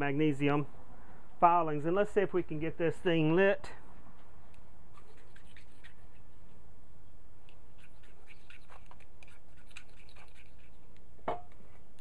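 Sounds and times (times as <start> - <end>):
low background noise: 0.0 - 12.0.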